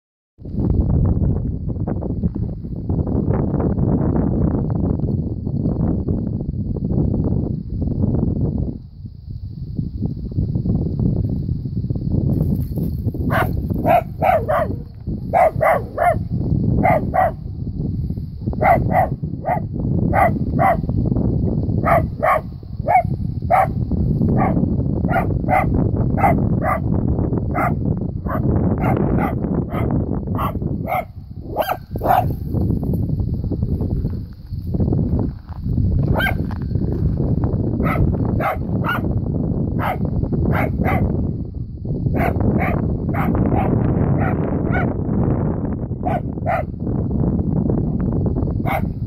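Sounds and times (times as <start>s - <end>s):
dog barking: 13.3s - 17.4s, 18.6s - 20.9s, 21.8s - 23.8s, 24.4s - 26.9s, 27.5s - 32.4s, 36.1s - 36.4s, 37.8s - 39.2s, 39.8s - 41.2s, 42.2s - 45.0s, 46.0s - 46.8s, 48.6s - 49.0s.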